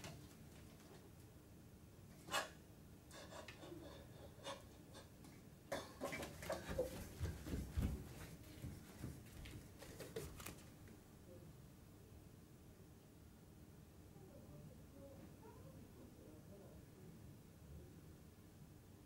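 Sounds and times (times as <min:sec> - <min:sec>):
bare footsteps on wooden floor: 0:06.2 - 0:09.7.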